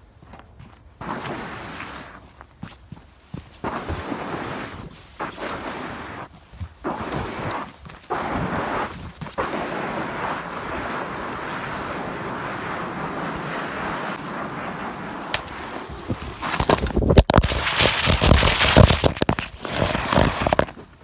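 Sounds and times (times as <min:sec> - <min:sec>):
footsteps on snow: 0:00.0 - 0:21.0
steady rushing noise: 0:08.1 - 0:20.6.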